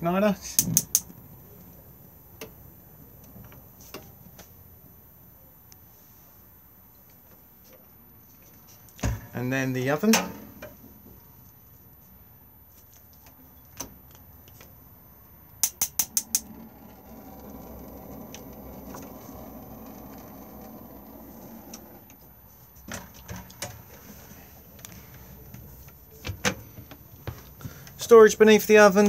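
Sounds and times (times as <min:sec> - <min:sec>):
gas burner rushing: 0:15.6 - 0:24.6.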